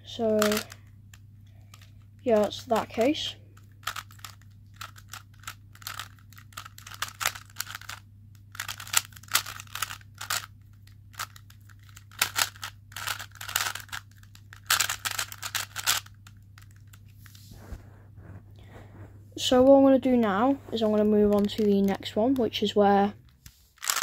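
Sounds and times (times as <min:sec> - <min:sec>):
speed cube clicking: 0:00.4 - 0:00.8, 0:03.8 - 0:10.5, 0:11.1 - 0:16.2, 0:23.8 - 0:24.0.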